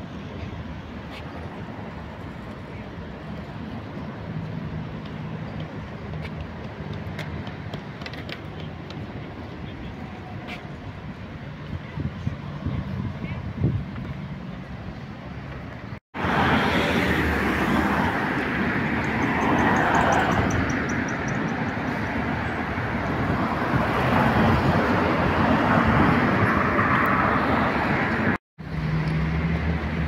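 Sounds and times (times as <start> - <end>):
cars passing on road: 0.0 - 30.0.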